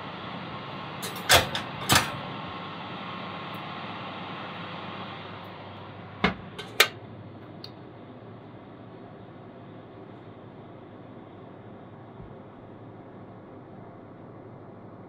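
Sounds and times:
oven humming: 0.0s - 15.0s
metal set down on wire rack: 1.0s - 2.2s
oven door latching: 1.0s - 2.2s
oven door thudding shut: 1.0s - 2.2s, 6.2s - 6.9s.

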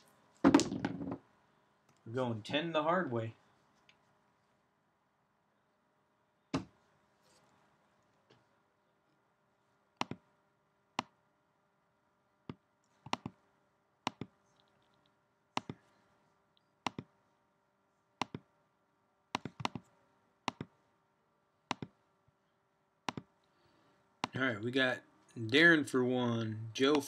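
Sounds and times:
faint steady hum: 0.0s - 27.0s
computer mouse clicking: 10.0s - 10.2s, 12.5s - 13.4s, 14.1s - 15.0s, 15.6s - 15.8s, 16.9s - 17.1s, 18.2s - 18.4s, 19.4s - 19.9s, 20.5s - 20.7s, 21.7s - 22.0s, 23.1s - 23.3s.

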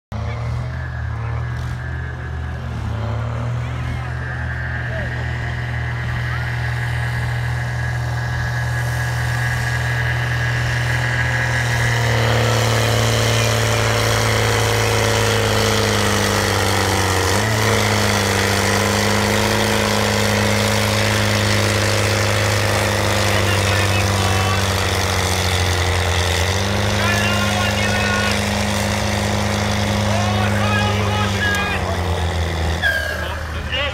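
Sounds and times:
tractor diesel engine under load: 0.0s - 33.9s.

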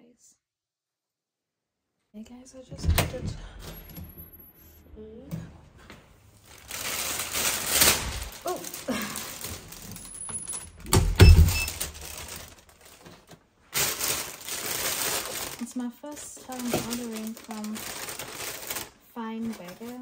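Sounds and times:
front door shutting: 2.7s - 4.6s, 10.7s - 12.0s
plastic carrier bag rustling: 6.3s - 20.0s.

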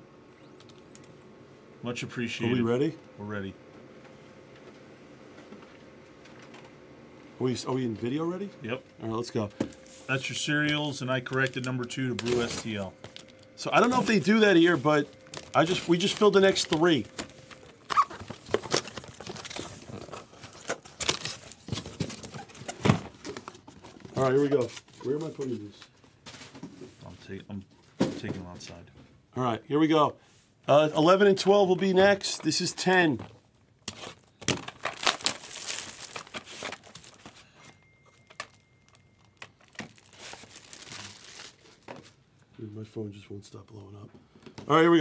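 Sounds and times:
cardboard box rustling: 33.9s - 38.6s, 39.6s - 41.5s.

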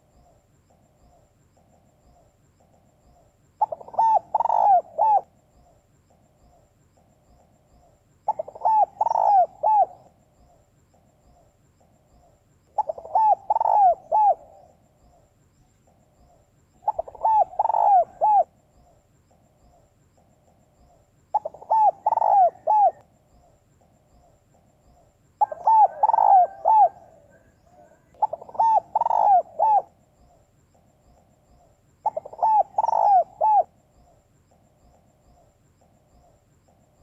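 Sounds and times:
dove cooing: 0.0s - 5.8s, 7.8s - 10.6s, 11.3s - 15.2s, 15.9s - 19.0s, 19.7s - 23.6s, 24.2s - 30.4s, 31.6s - 34.2s.

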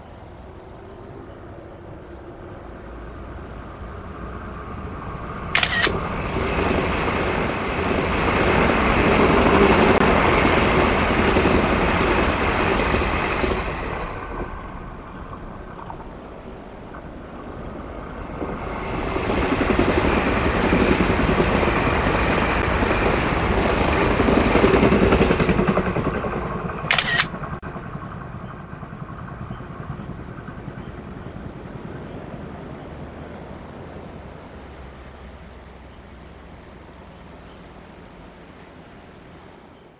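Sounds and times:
train rumbling past: 0.0s - 39.9s
sharp click: 5.6s - 6.0s, 26.9s - 27.3s.

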